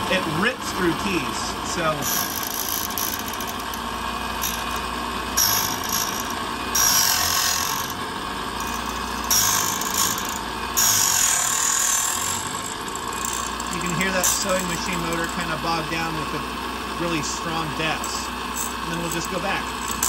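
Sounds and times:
key machine motor running: 1.8s - 15.9s
cutter wheel cutting key: 1.8s - 16.6s, 18.0s - 20.0s.

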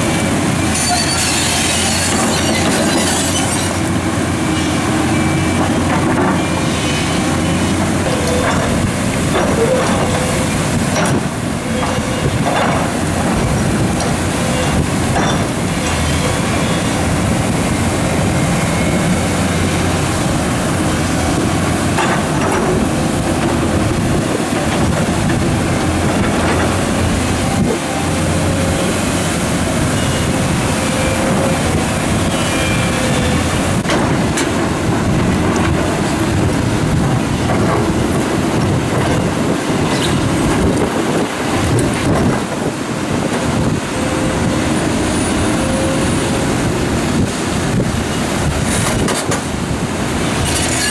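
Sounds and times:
diesel excavator engine running: 0.0s - 50.9s.

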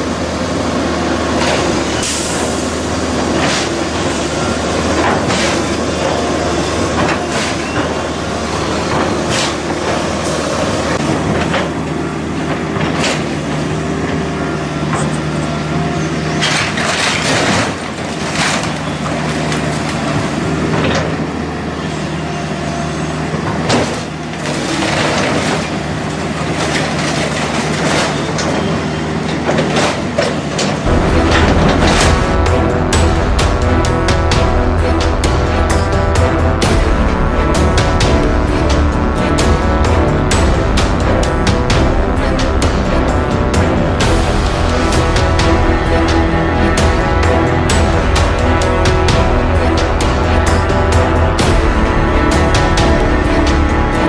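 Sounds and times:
excavator diesel engine running: 0.0s - 54.0s
timber cracking and debris crashing: 16.4s - 20.1s, 23.8s - 28.6s.

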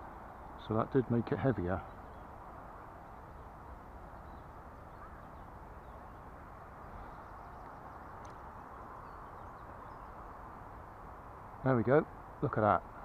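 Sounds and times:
faint bird calls: 0.0s - 11.2s
low outdoor hiss: 0.0s - 13.0s.

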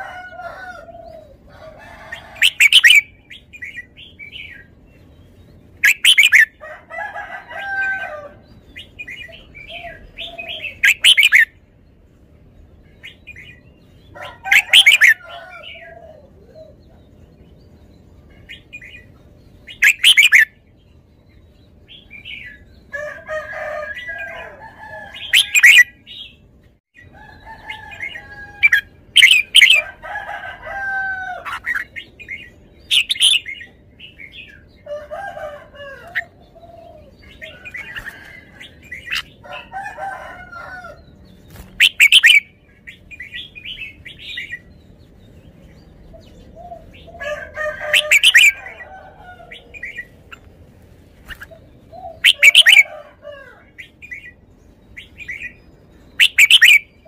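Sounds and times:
bird chirps and warbles: 0.0s - 57.0s
bird song phrases: 0.0s - 57.0s.

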